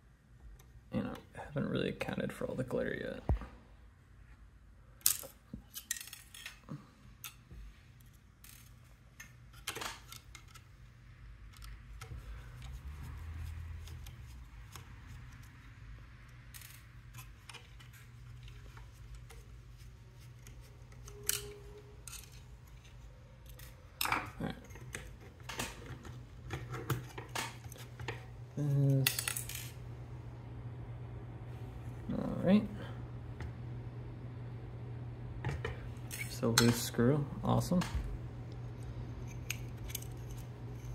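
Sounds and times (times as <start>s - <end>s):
steady low hum: 0.0s - 40.9s
small metal parts clicking: 5.0s - 7.4s, 8.0s - 10.7s, 16.2s - 19.4s, 20.9s - 27.8s, 28.8s - 29.8s, 39.2s - 40.9s.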